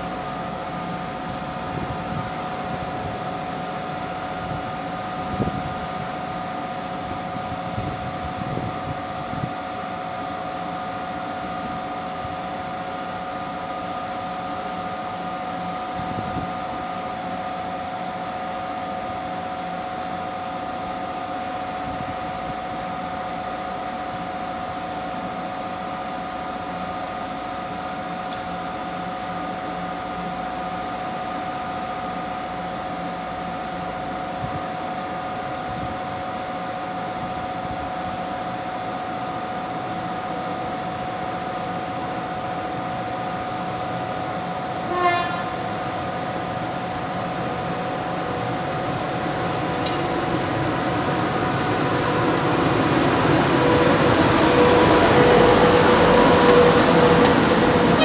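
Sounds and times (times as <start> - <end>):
approaching locomotives rumble: 0.0 - 58.0
train horn toot: 44.8 - 45.8, 54.5 - 58.0
locomotive blowers humming: 48.3 - 58.0.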